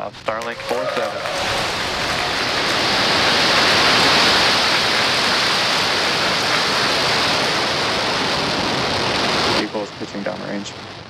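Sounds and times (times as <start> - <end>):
rocket engines roaring: 0.0 - 11.0.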